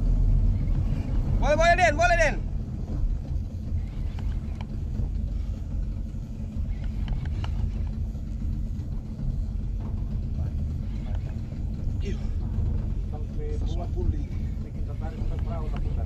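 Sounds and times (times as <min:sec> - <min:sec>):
boat engine idling: 0:00.0 - 0:16.0
faint clicks: 0:06.6 - 0:08.0.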